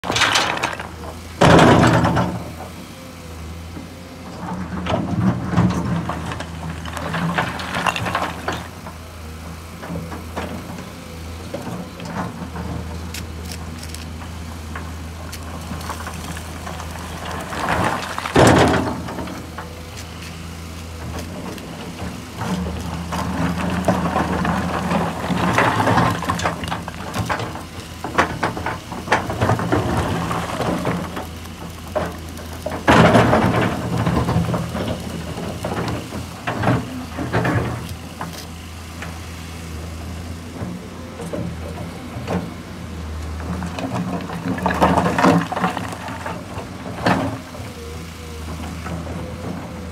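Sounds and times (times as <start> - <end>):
diesel engine running: 0.0 - 49.9
excavator bucket scraping rocky ground: 0.0 - 49.9.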